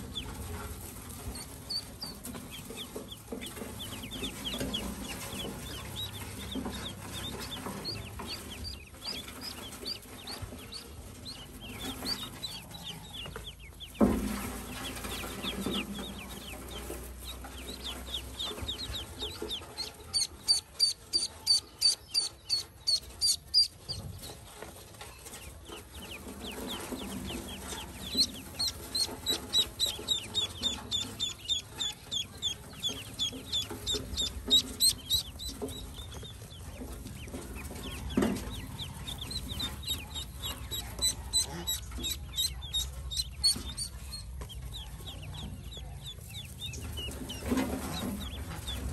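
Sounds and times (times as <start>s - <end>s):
ducklings peeping: 0.0s - 48.9s.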